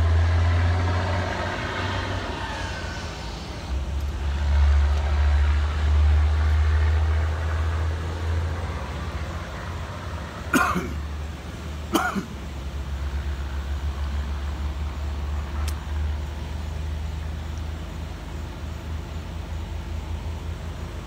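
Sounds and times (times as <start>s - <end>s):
truck engine rumbling: 0.0s - 21.0s
person coughing: 10.5s - 11.0s, 11.9s - 12.4s.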